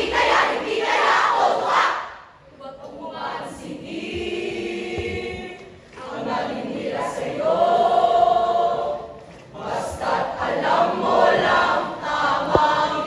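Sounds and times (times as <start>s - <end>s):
youth choir singing: 0.0s - 13.0s.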